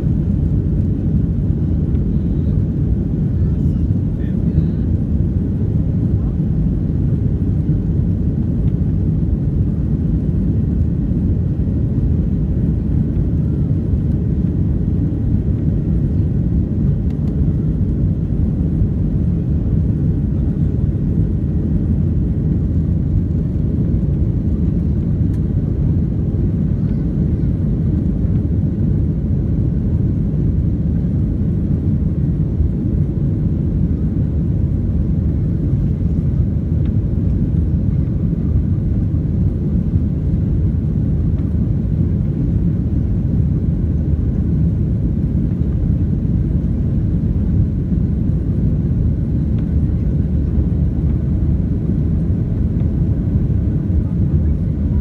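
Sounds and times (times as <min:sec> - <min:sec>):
airflow over fuselage: 0:00.0 - 0:55.0
jet engines rumbling: 0:00.0 - 0:55.0.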